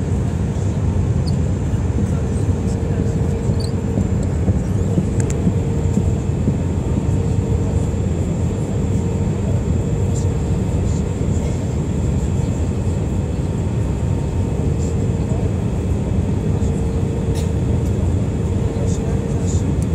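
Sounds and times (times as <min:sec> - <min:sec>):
airliner cabin engine rumble: 0:00.0 - 0:19.9.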